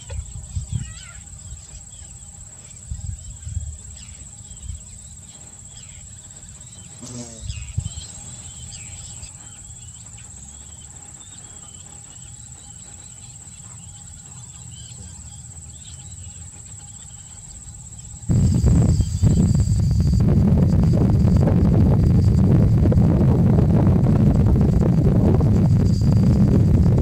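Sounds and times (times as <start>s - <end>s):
faint bird chirps: 0.0s - 22.4s
high-pitched insect buzz: 0.0s - 27.0s
low rumble: 18.3s - 27.0s.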